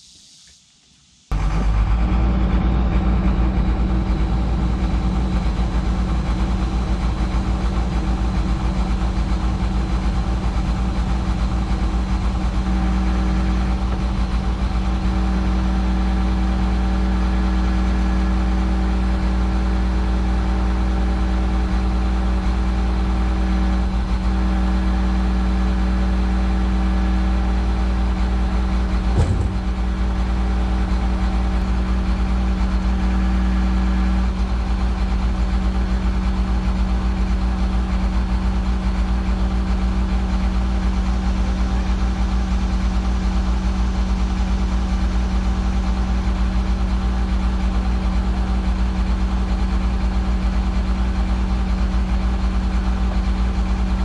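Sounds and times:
truck engine running: 0:01.3 - 0:54.0
short knock: 0:29.2 - 0:30.0.

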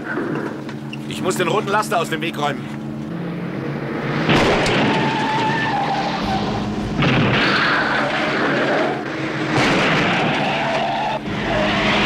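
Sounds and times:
engine and road noise: 0:00.0 - 0:12.0
tires squealing and skidding: 0:04.1 - 0:12.0.

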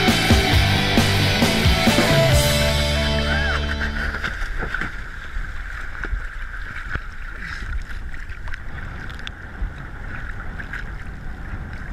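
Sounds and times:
sea water lapping and splashing: 0:03.6 - 0:11.9
wind on microphone: 0:07.4 - 0:11.9.

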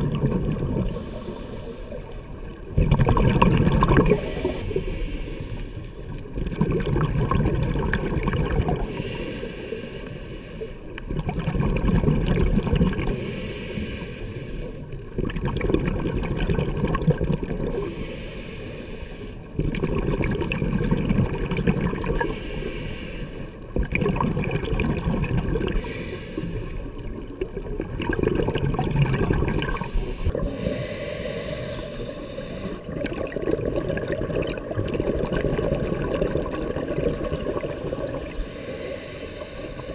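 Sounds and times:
exhaust bubbles rushing: 0:00.0 - 0:00.8, 0:02.8 - 0:04.2, 0:27.8 - 0:30.5
regulator inhale hiss: 0:00.8 - 0:02.6, 0:04.0 - 0:06.2, 0:08.8 - 0:11.0, 0:13.1 - 0:15.0, 0:17.7 - 0:19.6, 0:22.2 - 0:23.7, 0:25.7 - 0:27.2, 0:29.6 - 0:33.0, 0:37.2 - 0:39.9.

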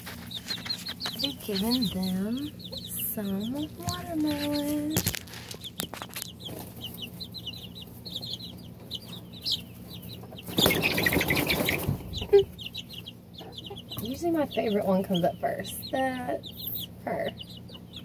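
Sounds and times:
scuffling and rustling: 0:00.0 - 0:02.5, 0:03.1 - 0:08.0
chicks peeping: 0:00.0 - 0:18.0.

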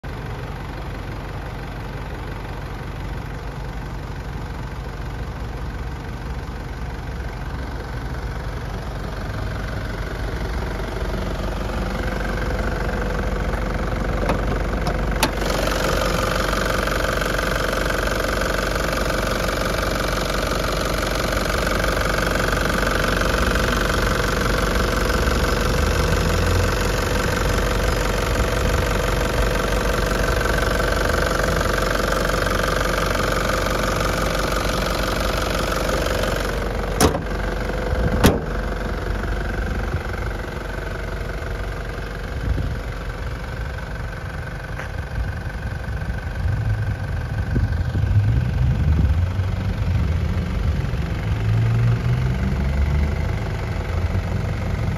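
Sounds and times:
diesel engine idling: 0:00.0 - 0:54.9.

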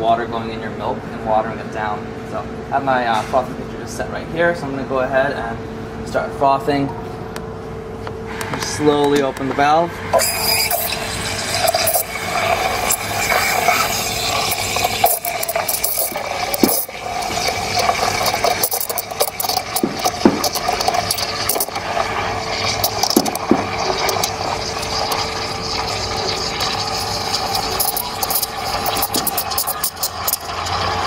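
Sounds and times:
steam wand hissing in milk: 0:10.1 - 0:31.0.

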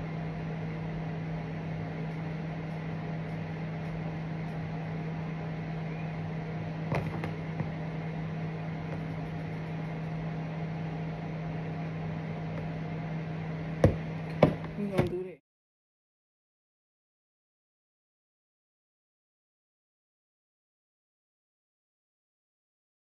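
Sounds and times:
steady low hum: 0:00.0 - 0:15.4.

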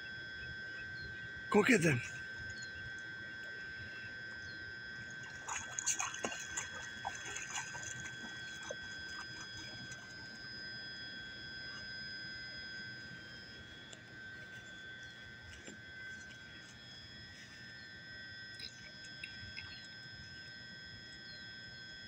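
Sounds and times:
high-pitched hum: 0:00.0 - 0:22.0
dog splashing through water: 0:05.2 - 0:10.2.

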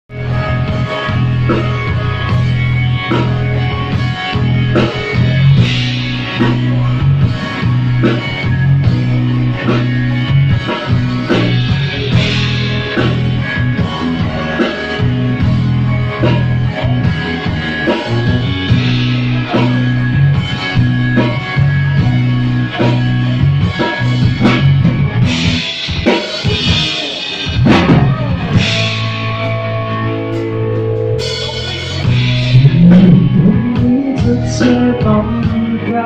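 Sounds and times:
electric bass line: 0:00.1 - 0:36.0
guitar: 0:00.1 - 0:36.0
drum kit hits: 0:22.8 - 0:35.6.

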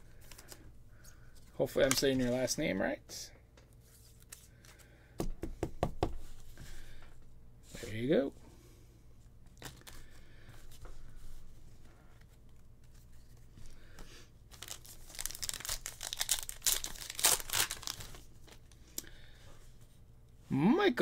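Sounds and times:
card pack wrapper rustling: 0:09.5 - 0:10.2, 0:14.5 - 0:18.8
wrapper tearing with crackling: 0:14.5 - 0:18.2.

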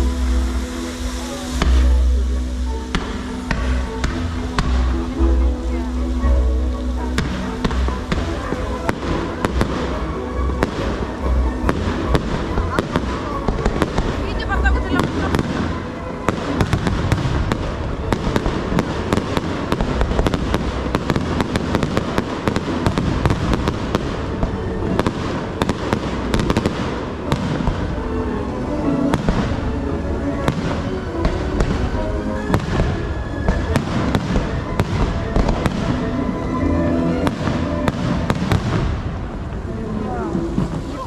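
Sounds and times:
fireworks bangs and crackles: 0:00.0 - 0:41.0
music playing: 0:00.0 - 0:41.0.

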